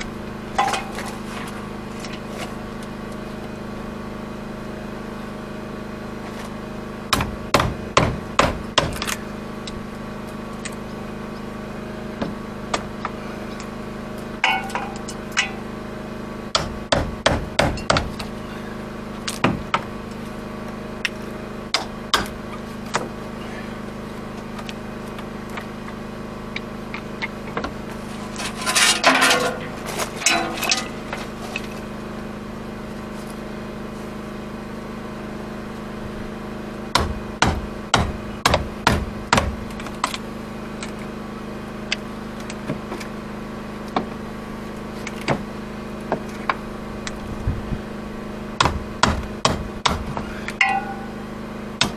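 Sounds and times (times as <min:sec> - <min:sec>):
crunching and scraping: 0:26.9 - 0:31.9.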